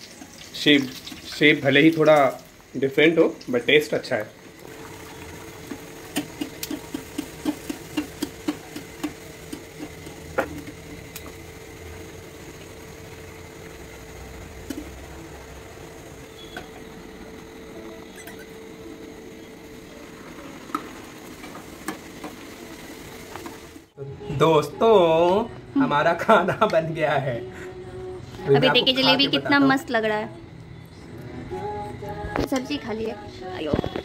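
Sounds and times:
food sizzling in hot oil: 0:00.0 - 0:24.0.

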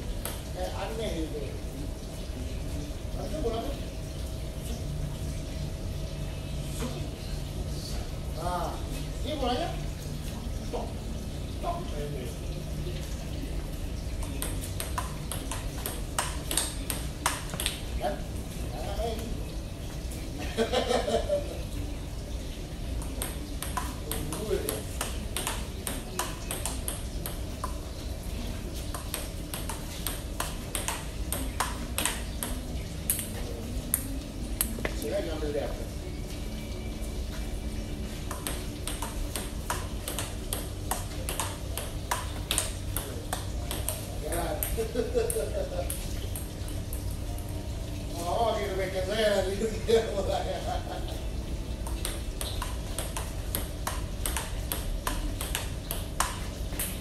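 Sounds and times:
table tennis ball rally: 0:14.3 - 0:17.9, 0:23.0 - 0:27.5, 0:28.9 - 0:34.0, 0:38.3 - 0:46.0, 0:52.0 - 0:57.0.

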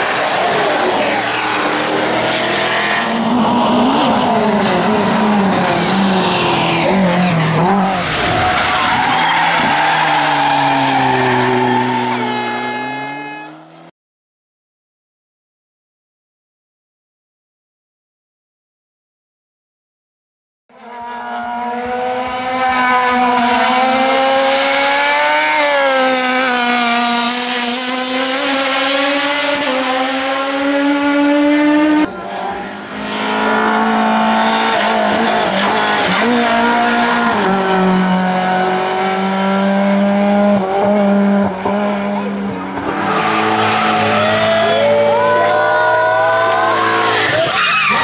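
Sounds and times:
race car engine at high revs: 0:00.0 - 0:13.9, 0:20.7 - 0:48.0
tyre squeal: 0:08.1 - 0:13.6, 0:46.9 - 0:48.0.

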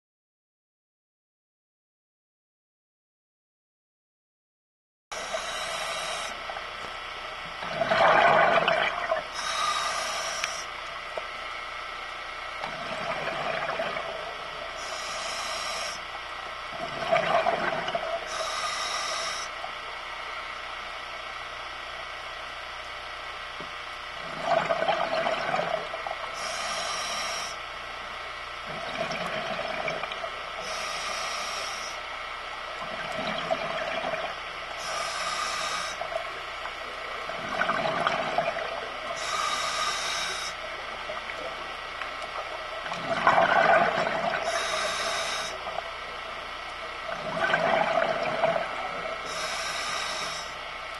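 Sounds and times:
gurgling exhaled bubbles: 0:07.4 - 0:11.2, 0:12.5 - 0:19.8, 0:24.2 - 0:27.5, 0:28.6 - 0:32.0, 0:32.7 - 0:50.6
regulator hissing: 0:09.3 - 0:10.8, 0:26.3 - 0:27.6, 0:30.6 - 0:32.1, 0:34.8 - 0:37.2, 0:39.1 - 0:40.8, 0:44.2 - 0:46.2, 0:48.9 - 0:50.6.

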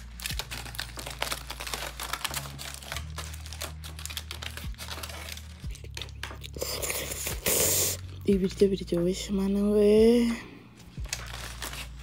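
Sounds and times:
aluminium foil crinkling: 0:00.0 - 0:08.0, 0:10.8 - 0:12.0.

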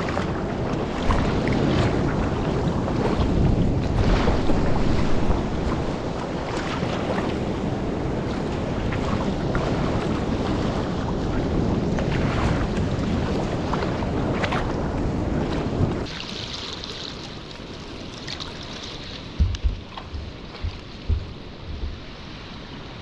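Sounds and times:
surf breaking on rocks: 0:00.0 - 0:10.9
wind buffeting microphone: 0:00.0 - 0:16.1, 0:19.0 - 0:23.0
water sloshing and splashing: 0:00.0 - 0:23.0.

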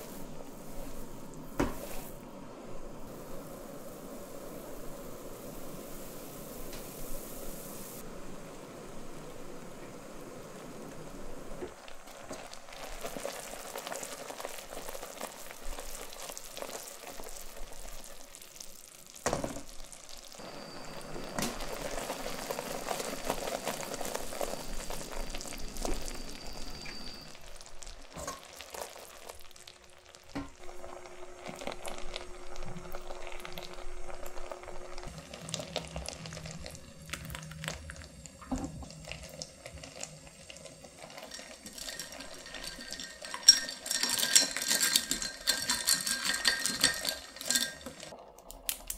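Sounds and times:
syrup bubbles popping in a pot: 0:45.2 - 0:48.9.

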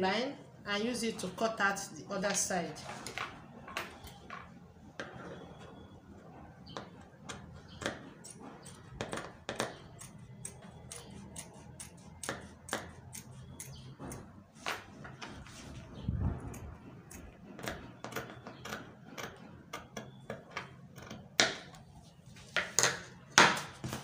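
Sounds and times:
scissors cutting leather: 0:08.3 - 0:13.8.

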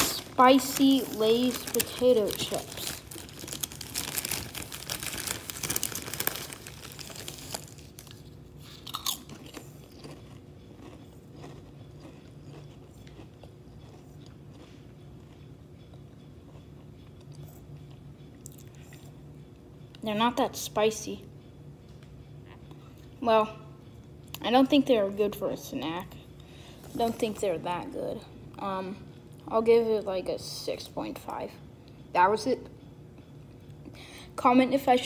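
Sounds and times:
potato chips crunching: 0:00.0 - 0:15.4.

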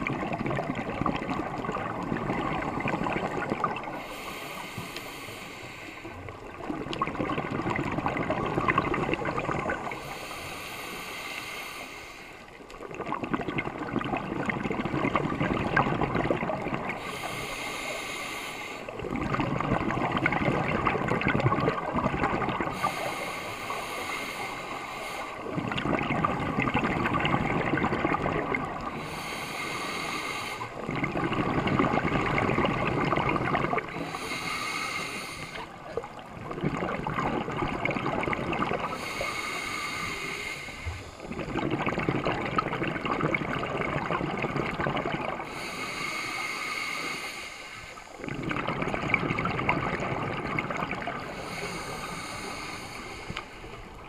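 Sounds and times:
bubbling exhale underwater: 0:00.0 - 0:11.3, 0:12.8 - 0:54.0
regulator hissing inhale: 0:03.9 - 0:06.6, 0:09.8 - 0:12.6, 0:16.9 - 0:19.1, 0:22.7 - 0:25.6, 0:28.8 - 0:30.9, 0:33.8 - 0:36.2, 0:38.8 - 0:41.3, 0:45.4 - 0:48.2, 0:51.2 - 0:54.0.

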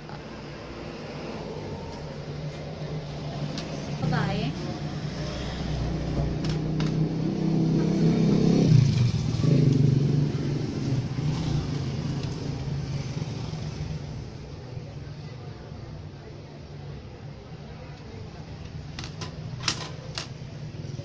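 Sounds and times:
vehicle engine passing by: 0:00.8 - 0:14.4.

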